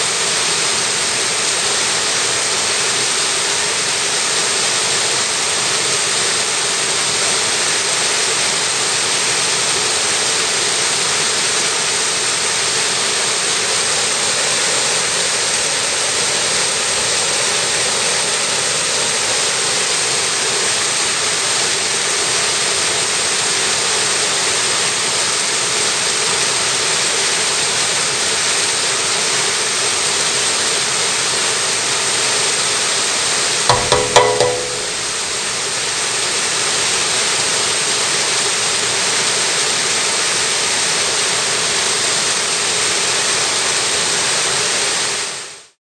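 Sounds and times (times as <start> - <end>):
stream rushing over boulders: 0.0 - 32.9.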